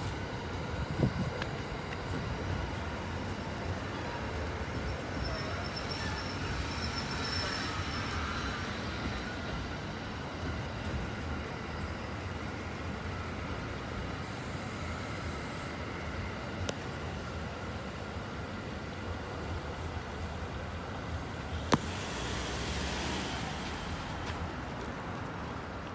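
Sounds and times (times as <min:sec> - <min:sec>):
train wheels rumbling on rail: 0:00.0 - 0:18.6
road traffic: 0:00.0 - 0:25.9.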